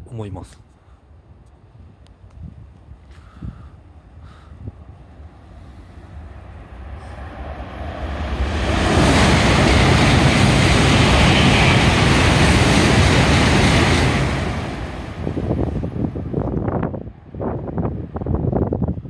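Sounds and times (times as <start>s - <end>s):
train passing at high speed: 3.8s - 19.0s.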